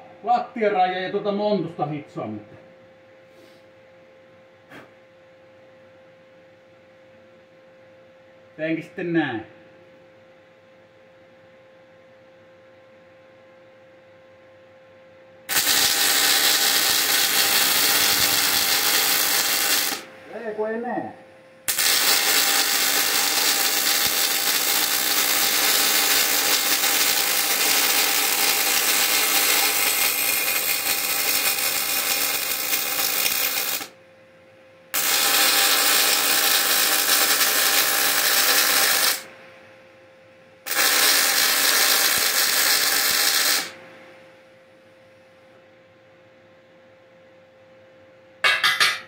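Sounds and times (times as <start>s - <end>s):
arc welding: 15.5s - 20.6s, 21.6s - 34.0s, 34.9s - 39.3s, 40.6s - 43.8s.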